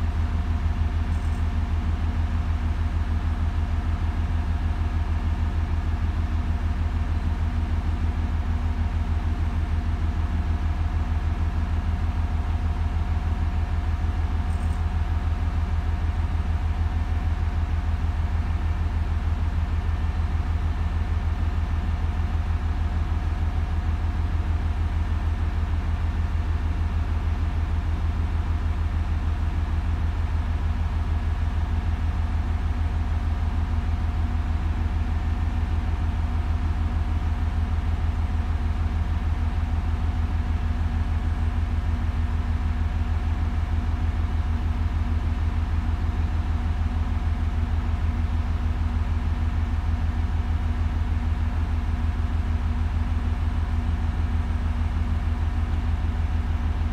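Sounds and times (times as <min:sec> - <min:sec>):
faint high-pitched hum: 0:00.0 - 0:05.3, 0:13.6 - 0:15.4
engine idling drone: 0:00.0 - 0:56.9.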